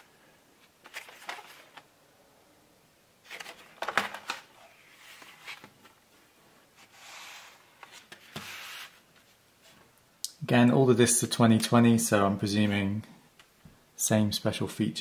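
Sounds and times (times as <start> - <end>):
cardboard rustling: 0.6 - 1.9, 3.2 - 6.1, 6.7 - 9.8.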